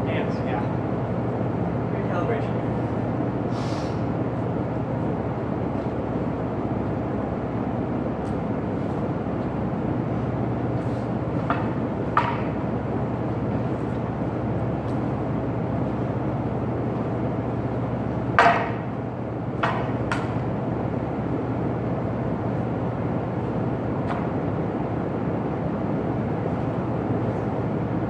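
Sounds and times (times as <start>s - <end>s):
steady hum: 0.0s - 28.0s.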